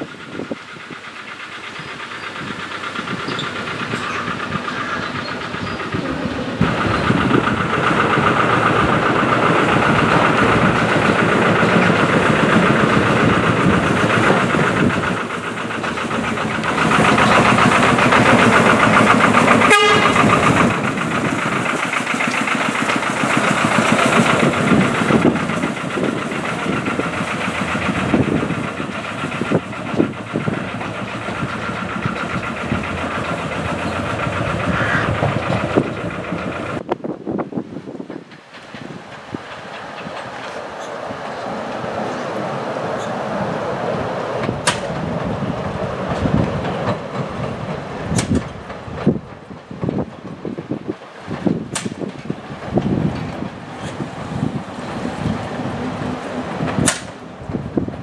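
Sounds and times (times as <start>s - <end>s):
diesel locomotive running on rails: 0.0s - 58.0s
sharp click: 44.6s - 44.9s, 48.2s - 48.5s, 51.7s - 52.0s, 56.8s - 57.2s.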